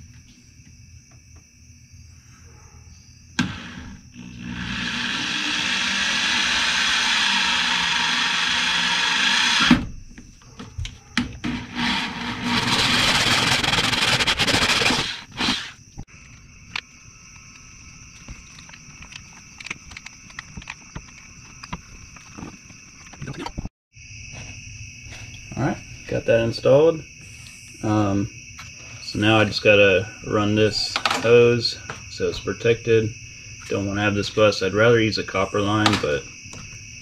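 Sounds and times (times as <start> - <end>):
power drill running: 3.4 - 9.8, 11.5 - 15.8.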